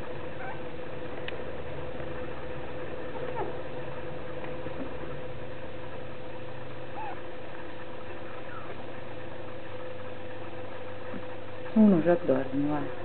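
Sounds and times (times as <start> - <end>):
steady background hum: 0.0 - 13.0
puppies whimpering: 0.4 - 0.7, 3.1 - 3.6, 6.9 - 7.3, 8.2 - 8.9.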